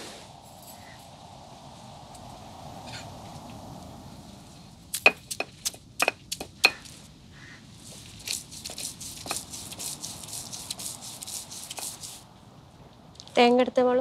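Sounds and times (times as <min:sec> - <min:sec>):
rough rapid crunching scrape: 0:07.8 - 0:12.2.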